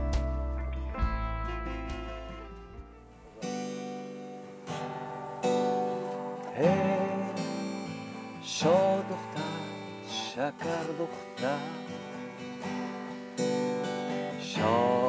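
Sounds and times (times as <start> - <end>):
acoustic guitar strumming: 0.0 - 15.0
man singing: 6.4 - 13.4, 14.0 - 15.0.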